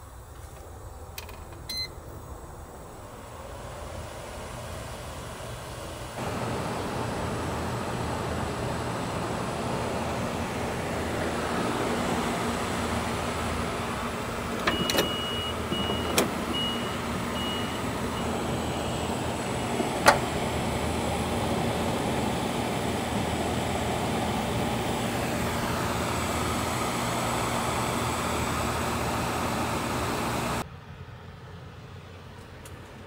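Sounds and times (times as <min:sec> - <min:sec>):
van engine hum with road noise: 0:00.0 - 0:33.0
electronic warning chime beeping: 0:14.7 - 0:19.1.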